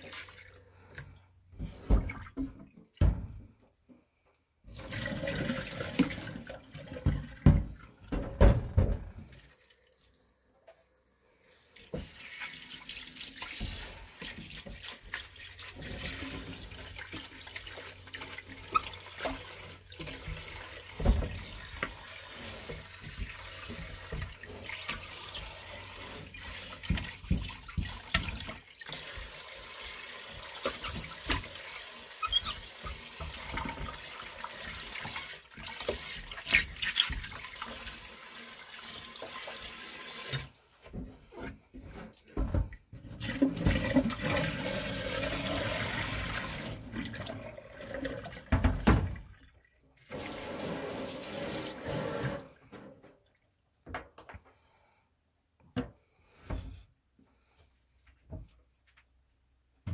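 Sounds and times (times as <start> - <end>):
faucet spraying water: 11.7 - 36.4, 50.0 - 52.5.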